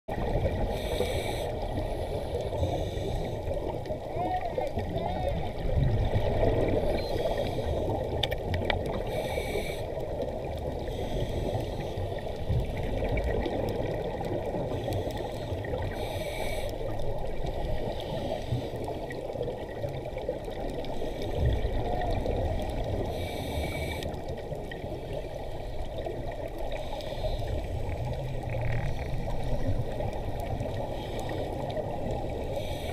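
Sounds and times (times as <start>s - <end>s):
muffled underwater water wash: 0.1s - 32.9s
scuba regulator breathing hiss: 0.6s - 3.5s, 7.1s - 8.0s, 9.0s - 10.0s, 10.8s - 12.6s, 14.7s - 16.9s, 17.8s - 18.9s, 22.9s - 24.2s, 26.7s - 27.9s, 32.4s - 32.9s
low bubbling rumble: 5.5s - 7.1s.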